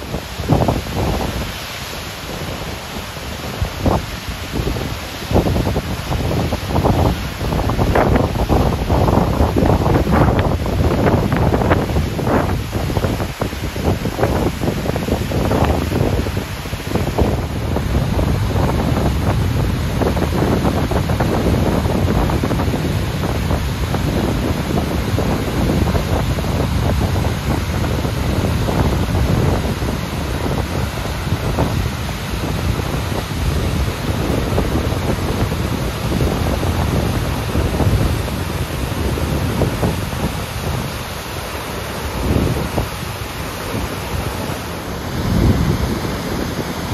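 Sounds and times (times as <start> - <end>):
waterfall rushing: 0.0 - 46.9
wind buffeting microphone: 0.0 - 46.9.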